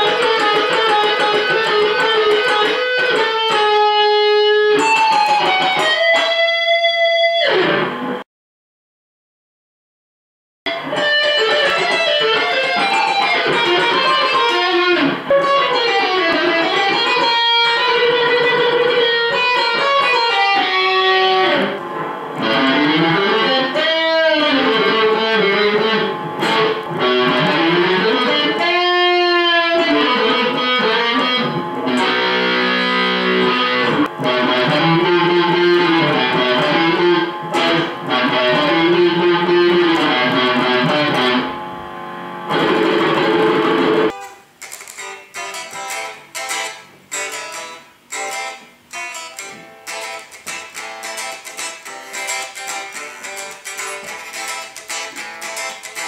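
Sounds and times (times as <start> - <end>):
electric guitar solo with tapping: 0.0 - 8.2, 10.7 - 56.0.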